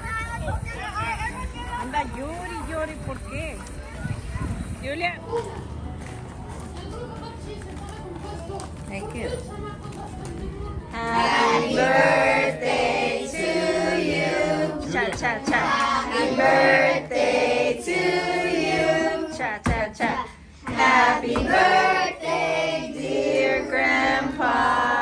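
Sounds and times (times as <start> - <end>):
voices singing together: 10.4 - 25.0.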